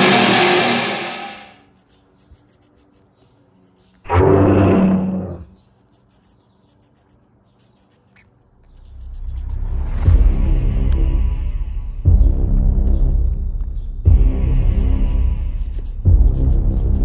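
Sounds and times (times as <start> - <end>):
deep roars: 4.1 - 5.6.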